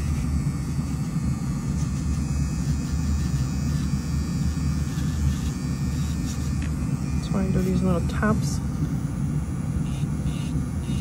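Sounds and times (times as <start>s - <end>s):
small motor humming: 0.0s - 11.0s.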